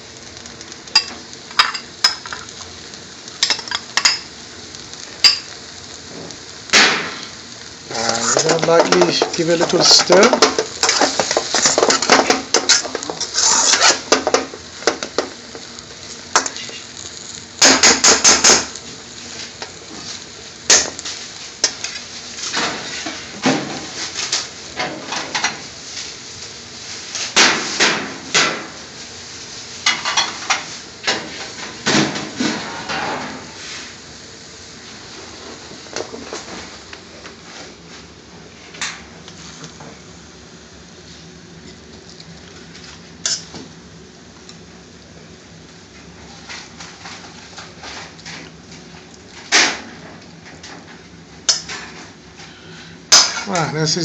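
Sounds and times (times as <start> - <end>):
metal spatula scraping a wok: 12.6 - 14.1.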